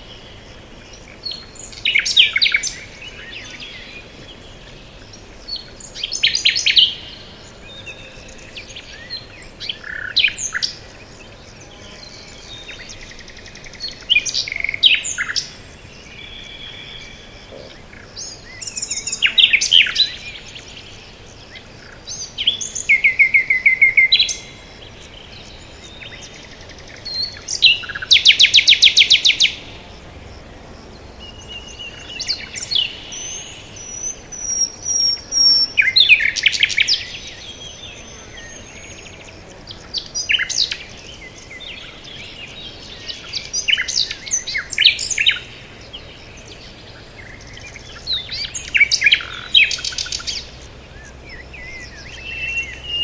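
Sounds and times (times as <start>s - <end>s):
songbirds singing: 0.0s - 53.0s.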